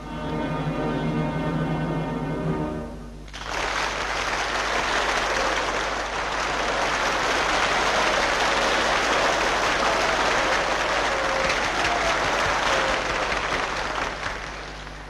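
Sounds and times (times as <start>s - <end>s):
orchestral music: 0.0s - 3.3s
audience applauding: 3.3s - 15.0s.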